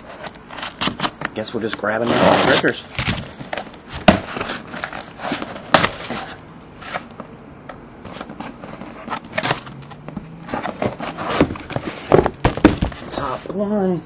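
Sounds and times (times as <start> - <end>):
shrink-wrap rustling: 0.0 - 7.1
cardboard box handled and opened: 8.0 - 13.5.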